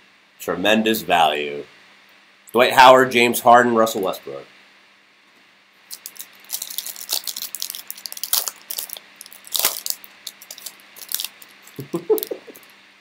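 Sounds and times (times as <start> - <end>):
foil wrapper crinkling and tearing: 5.9 - 12.7.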